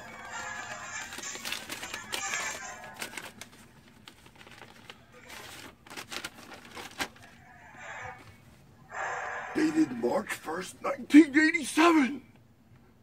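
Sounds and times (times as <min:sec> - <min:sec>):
paper rustling and crinkling: 0:00.0 - 0:07.4.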